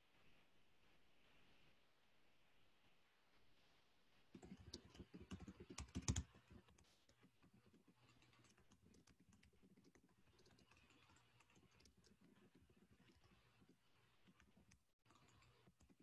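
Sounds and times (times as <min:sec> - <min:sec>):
keyboard typing: 0:04.4 - 0:06.8, 0:07.4 - 0:16.0.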